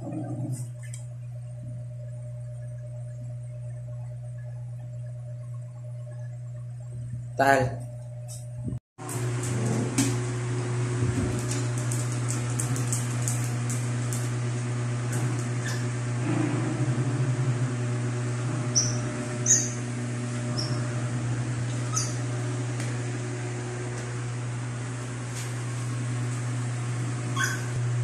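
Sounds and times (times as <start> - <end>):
low electrical hum: 0.0 - 28.0
puppies scuffling on hard floor: 11.0 - 14.4
puppy squeaks: 18.7 - 19.8, 21.9 - 22.2, 27.4 - 27.7.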